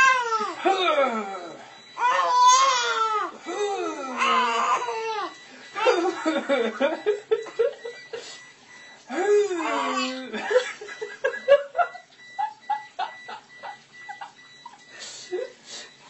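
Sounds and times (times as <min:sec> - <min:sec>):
man laughing hard: 0:05.7 - 0:08.3, 0:10.1 - 0:14.4.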